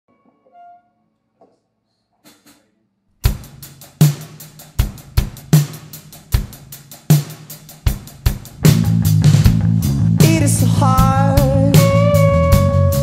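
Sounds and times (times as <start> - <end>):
rock drum kit playing: 3.2 - 13.0.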